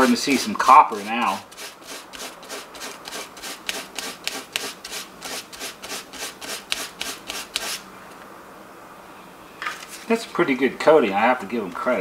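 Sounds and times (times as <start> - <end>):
sandpaper scratching wire: 0.0 - 7.8.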